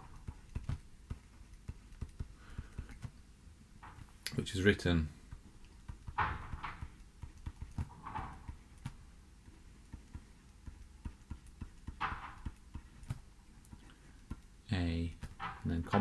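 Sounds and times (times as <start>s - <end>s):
stylus tapping on a screen: 0.0s - 3.2s, 5.3s - 14.5s.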